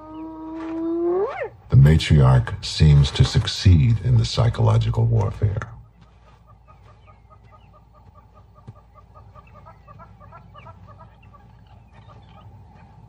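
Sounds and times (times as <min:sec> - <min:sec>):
low background noise: 0:00.0 - 0:13.0
animal clucking calls: 0:05.2 - 0:13.0.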